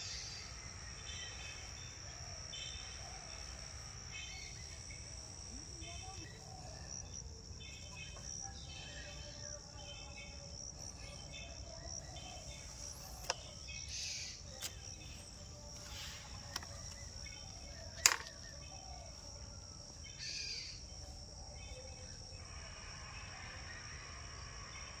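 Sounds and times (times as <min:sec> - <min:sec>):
crickets chirping: 0:00.0 - 0:25.0
sharp clicks: 0:17.9 - 0:18.4.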